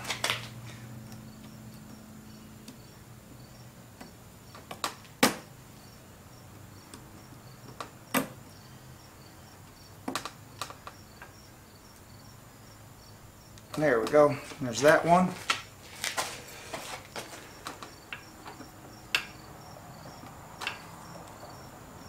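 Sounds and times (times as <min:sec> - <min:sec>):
handling noise: 0:13.7 - 0:19.3.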